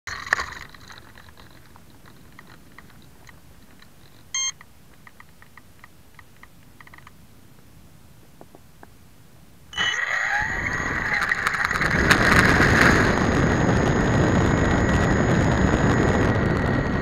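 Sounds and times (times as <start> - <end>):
short electronic beep: 4.4 - 4.6
burst of noise: 9.7 - 17.0.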